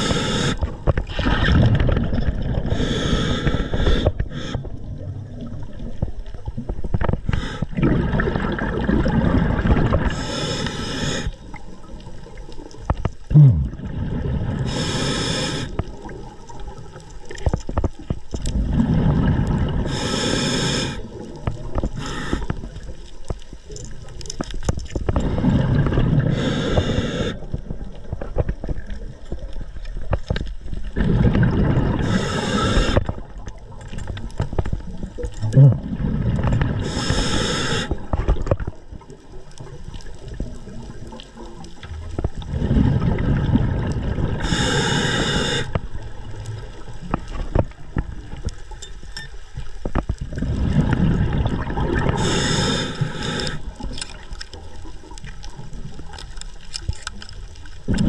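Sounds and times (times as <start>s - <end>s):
regulator inhale hiss: 0.0s - 0.8s, 2.7s - 4.8s, 7.2s - 7.7s, 10.0s - 11.6s, 14.6s - 15.9s, 19.8s - 22.7s, 26.2s - 27.5s, 31.9s - 33.2s, 36.8s - 38.1s, 44.4s - 45.8s, 52.1s - 53.8s
gurgle of exhaust bubbles: 7.7s - 10.1s, 13.3s - 14.7s, 18.5s - 19.9s, 30.9s - 32.0s, 41.7s - 44.4s, 50.2s - 52.4s.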